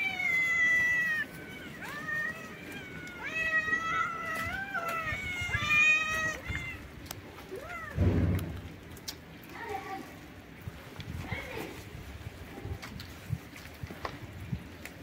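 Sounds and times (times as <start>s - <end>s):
cats meowing: 0.0s - 8.7s
dull low thump: 7.9s - 8.8s.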